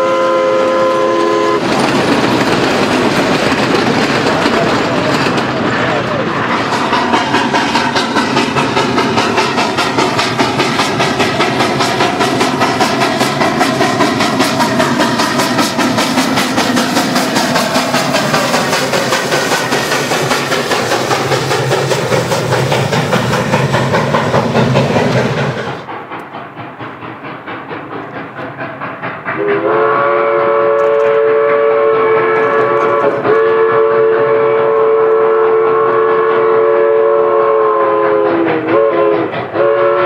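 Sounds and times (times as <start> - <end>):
steam whistle chord: 0.0 - 1.6, 29.4 - 40.0
steam locomotive chuffing: 0.0 - 40.0.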